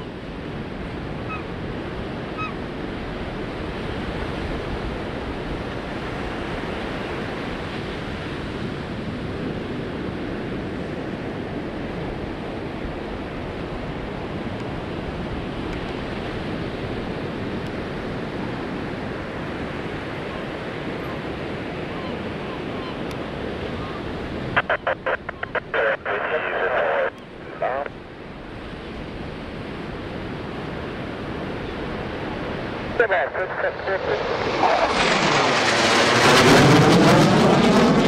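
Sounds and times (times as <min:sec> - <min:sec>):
ocean surf rushing: 0:14.8 - 0:38.0.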